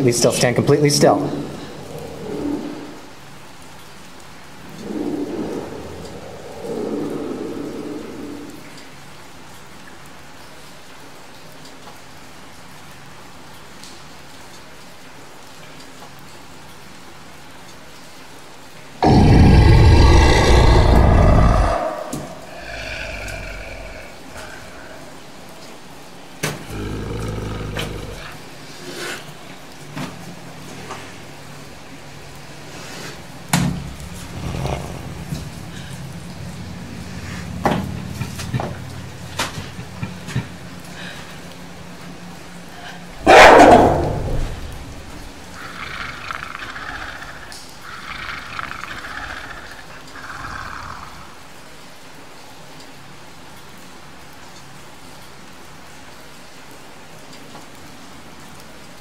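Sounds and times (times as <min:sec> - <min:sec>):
low rumbling creature growls: 0:01.0 - 0:03.4, 0:04.5 - 0:09.0, 0:19.0 - 0:29.2, 0:34.0 - 0:41.5, 0:42.6 - 0:51.5
loud animal-like call: 0:04.6 - 0:08.8, 0:19.0 - 0:25.8, 0:26.6 - 0:28.5, 0:42.9 - 0:51.4.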